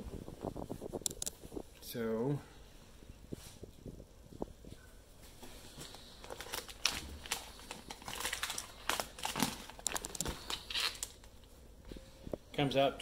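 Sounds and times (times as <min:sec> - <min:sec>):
plastic bags crinkling: 0:05.6 - 0:11.5.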